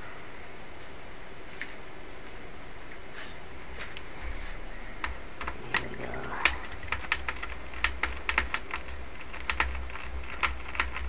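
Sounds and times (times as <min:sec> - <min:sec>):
screwdriver clicking on plastic: 0:05.0 - 0:11.0.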